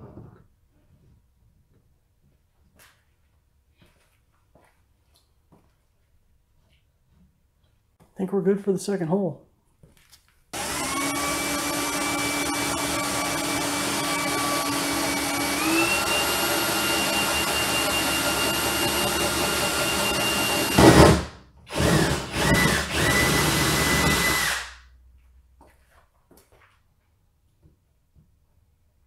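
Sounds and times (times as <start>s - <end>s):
electric drill boring through fiberglass: 10.6s - 24.8s.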